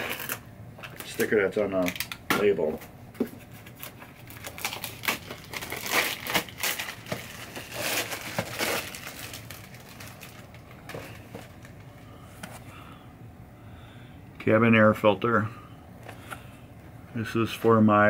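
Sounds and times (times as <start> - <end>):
plastic mailer bag crinkling: 3.6 - 12.0.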